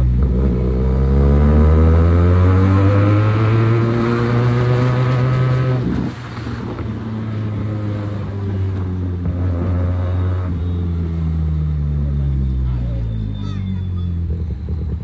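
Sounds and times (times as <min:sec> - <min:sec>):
motorcycle exhaust accelerating: 0:00.0 - 0:15.0.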